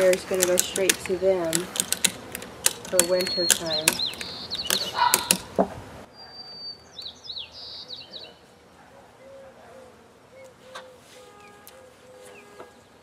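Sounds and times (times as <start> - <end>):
ratchet strap clicks: 0.0 - 5.5
birds chirping: 0.0 - 13.0
short repeated bird calls: 3.0 - 5.5, 9.2 - 13.0.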